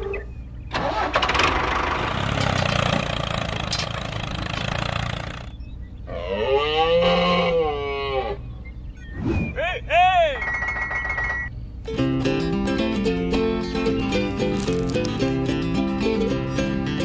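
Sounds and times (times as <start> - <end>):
small engine noise: 0.7 - 6.3.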